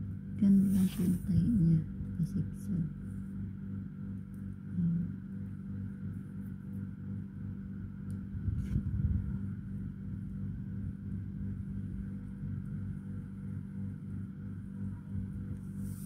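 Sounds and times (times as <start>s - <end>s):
low motor hum: 0.0s - 16.0s
microphone bump rumble and click: 8.1s - 9.5s.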